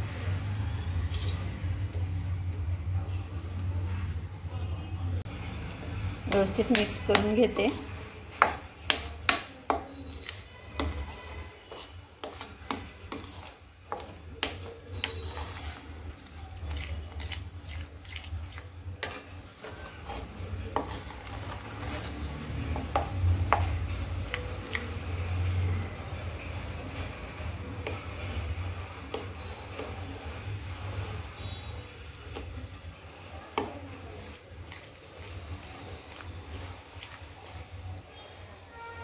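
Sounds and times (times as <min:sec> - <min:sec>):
metal spoon scraping a pan: 0:06.4 - 0:25.6, 0:33.5 - 0:38.9.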